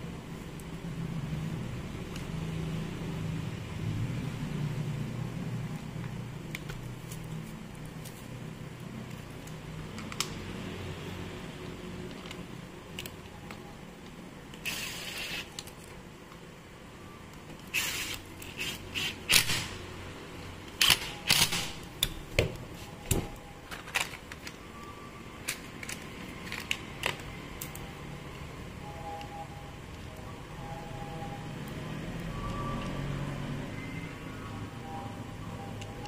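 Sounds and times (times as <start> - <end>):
clicks and knocks of parts handled: 20.7 - 24.6, 25.4 - 28.4.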